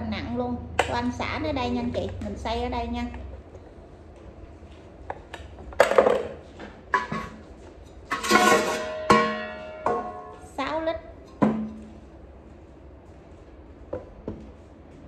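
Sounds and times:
pot and lid clanking: 6.9 - 7.4, 8.0 - 10.4.

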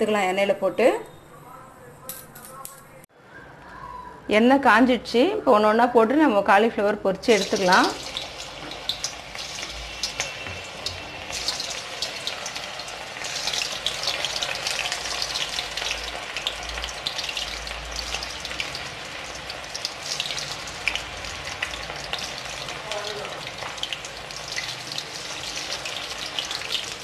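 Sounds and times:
batter deep-frying in oil: 6.0 - 27.0.

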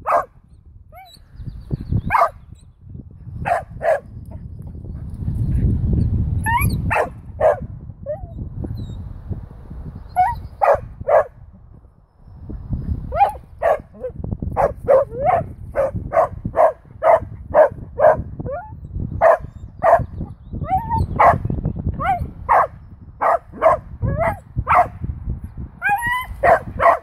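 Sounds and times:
dog barking: 0.0 - 0.3, 2.1 - 2.4, 3.4 - 4.1, 6.9 - 7.7, 10.2 - 11.4, 13.1 - 18.3, 19.2 - 20.1, 21.2 - 21.4, 22.0 - 25.0, 25.8 - 27.0.

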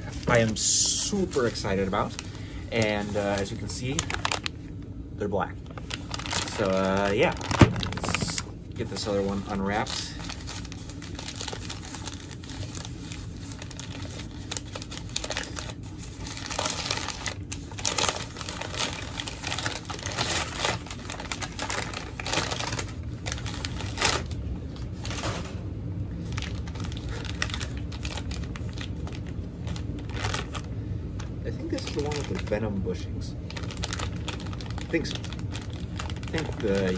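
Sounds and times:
paper and plastic bag crinkling: 0.0 - 4.8, 5.6 - 25.6, 26.2 - 36.9.

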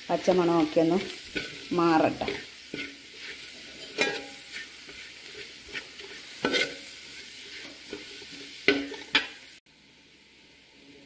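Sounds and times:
masala sizzling in a pot: 0.0 - 11.0
spoon scraping a steel pot: 1.0 - 9.4.

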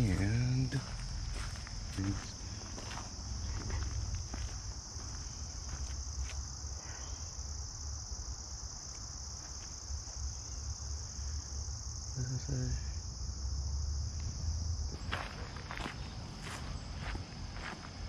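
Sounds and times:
crickets chirping: 0.0 - 18.0.

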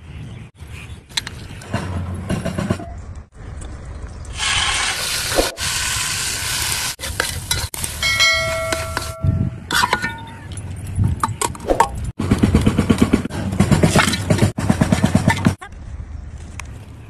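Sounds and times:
oil and spices sizzling in pot: 4.4 - 9.1
short chime: 8.0 - 9.6.

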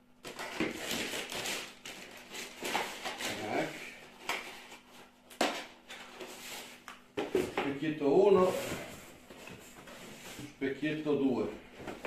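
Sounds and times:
packaging rustling: 0.2 - 7.6.

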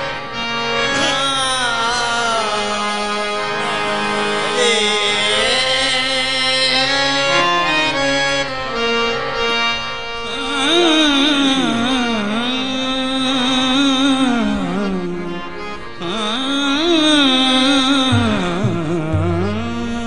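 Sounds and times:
harmonium melody: 0.0 - 20.0
person singing wavering line: 0.9 - 7.0.

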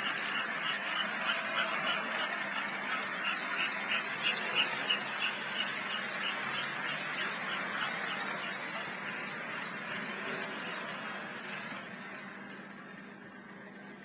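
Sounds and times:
model train squealing on track: 0.0 - 12.8.

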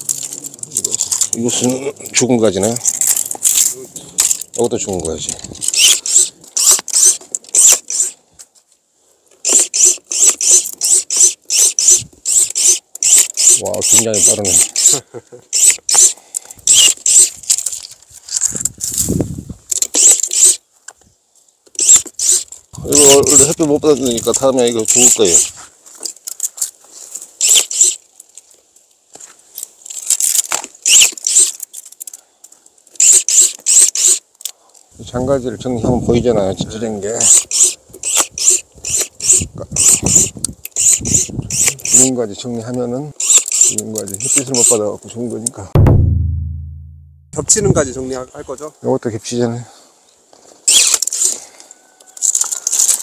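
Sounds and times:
branches rustling and scraping: 0.0 - 14.6, 16.6 - 35.0, 50.0 - 53.0
electric pruning shears cutting branches: 5.6 - 8.2, 9.4 - 15.0, 15.6 - 16.1, 21.8 - 23.5, 30.8 - 31.5, 33.0 - 34.2, 37.2 - 42.1, 43.2 - 44.8.

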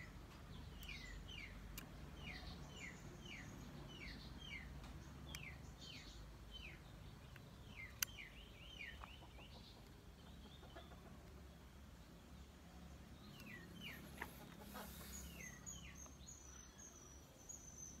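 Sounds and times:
faint bird chirping: 0.0 - 18.0.

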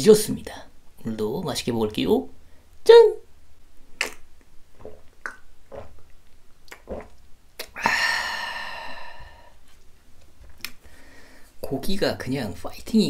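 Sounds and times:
person gulping a drink: 4.0 - 8.0
breathy exclamation of satisfaction: 7.6 - 9.6.

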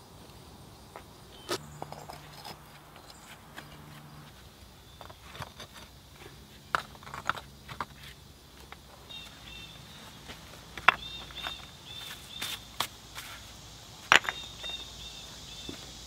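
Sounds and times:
stones clacking together: 5.0 - 6.0, 6.7 - 8.9, 10.3 - 12.2, 14.0 - 14.8.

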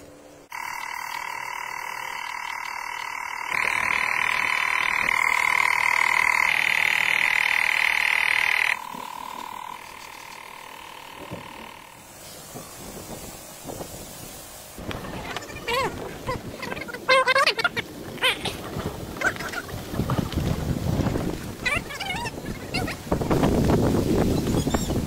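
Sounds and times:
high-pitched animal calling chorus: 0.5 - 12.0, 15.1 - 19.7.

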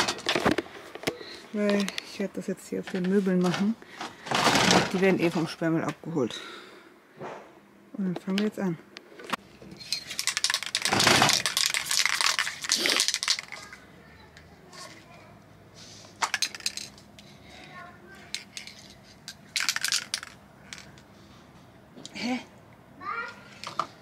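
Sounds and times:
aerosol can rattling: 9.8 - 13.8, 16.2 - 17.0, 18.3 - 20.9.

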